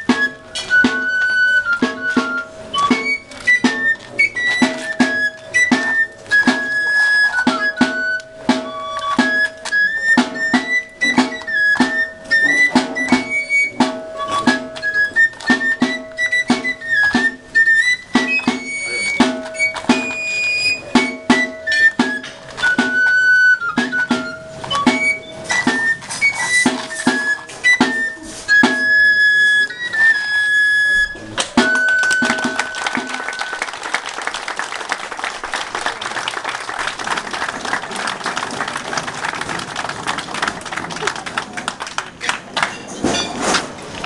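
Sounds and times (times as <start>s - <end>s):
pipe playing dance tune: 0.0s - 42.6s
steady drum beat: 31.5s - 34.6s
applause: 31.6s - 43.0s.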